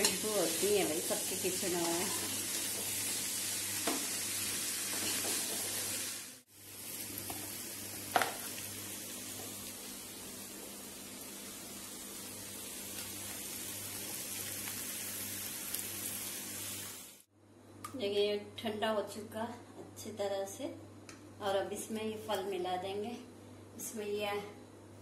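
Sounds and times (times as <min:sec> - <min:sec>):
chickpeas sizzling while stirred: 0:00.0 - 0:10.3, 0:10.9 - 0:17.3.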